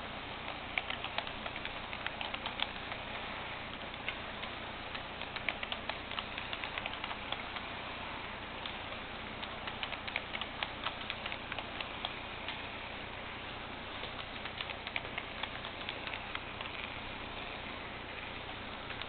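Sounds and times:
steady hiss: 0.0s - 19.0s
model train wheels clicking: 0.4s - 7.8s, 8.6s - 12.7s, 13.9s - 17.6s.

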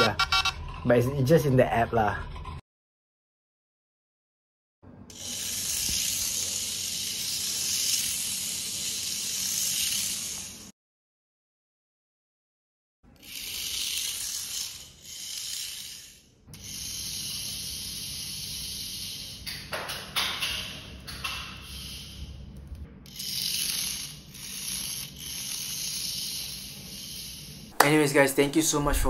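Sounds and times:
toy car motor whirring: 5.1s - 10.7s, 13.1s - 22.4s, 23.0s - 27.8s.

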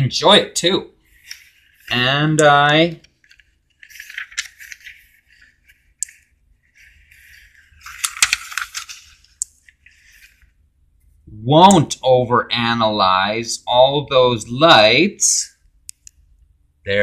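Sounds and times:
paper rustling: 1.0s - 11.2s.

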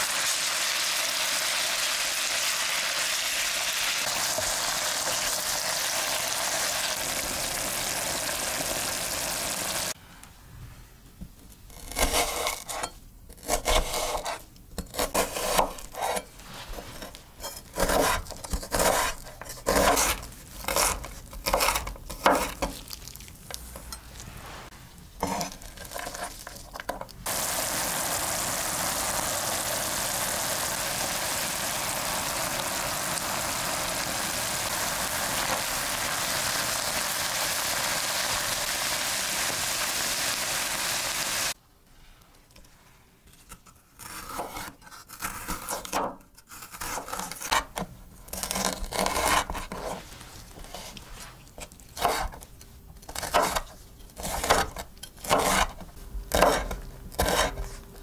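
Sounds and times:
meat frying in a pan: 0.0s - 10.0s, 27.2s - 41.6s
knife chopping on wooden board: 17.8s - 22.7s, 54.2s - 55.7s.

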